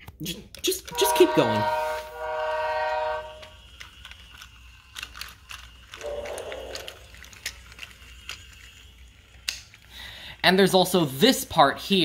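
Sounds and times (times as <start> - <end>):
toy train rolling on wooden track: 0.2 - 12.0
toy electronic pitched tone: 0.9 - 3.6, 6.0 - 7.2.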